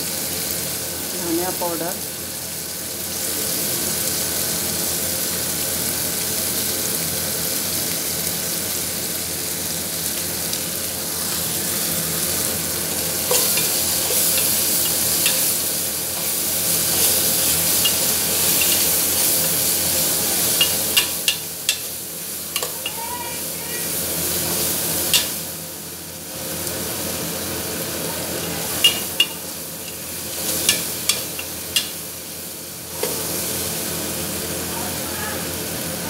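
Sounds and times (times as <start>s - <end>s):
food sizzling in a pan: 0.0s - 36.0s
spoon scraping and clinking pan: 13.2s - 15.6s, 16.2s - 19.0s, 28.8s - 32.0s.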